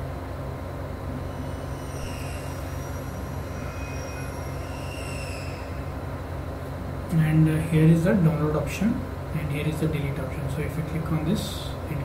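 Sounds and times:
low room and equipment hum: 0.0s - 12.0s
faint high thin tones: 1.1s - 6.3s.

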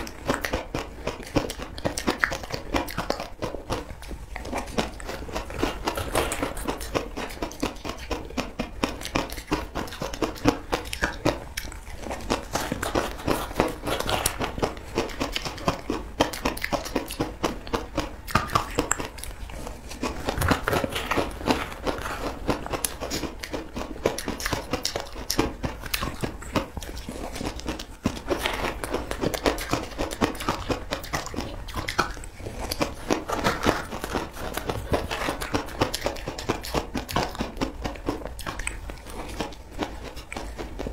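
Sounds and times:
person chewing crushed ice: 0.0s - 40.9s.

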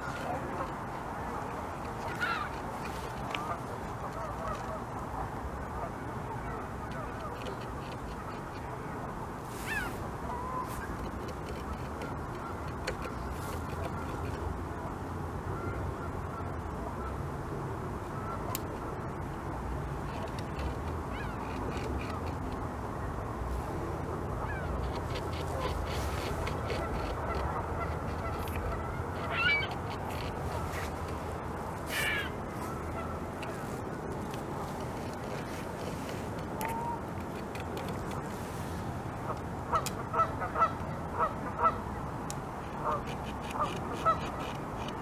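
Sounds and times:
background noise: 0.0s - 45.0s
beaver gnawing wood: 10.8s - 14.4s, 24.7s - 32.0s.

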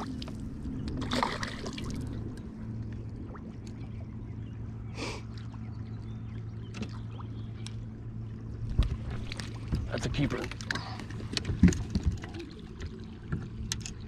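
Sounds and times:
boat motor humming: 0.0s - 14.0s
water splash: 1.0s - 2.3s.

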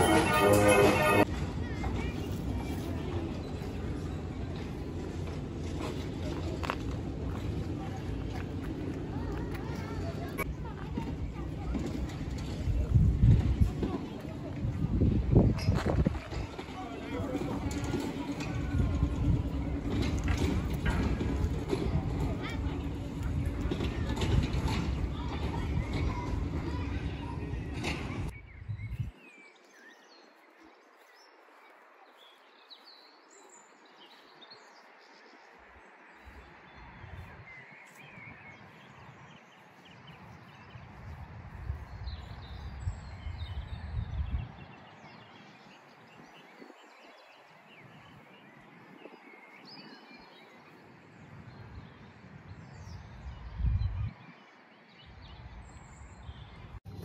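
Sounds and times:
low rumbles: 0.0s - 29.0s.

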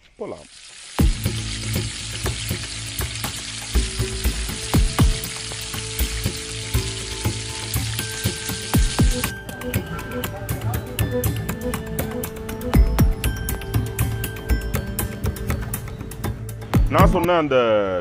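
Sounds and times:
batter deep-frying in oil: 0.0s - 9.3s
oil popping: 0.0s - 9.3s.

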